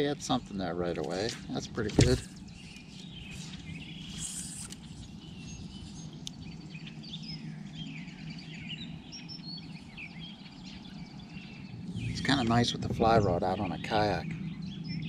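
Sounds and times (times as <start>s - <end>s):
birds chirping and singing: 0.0s - 15.0s
steady low hum: 0.0s - 15.0s.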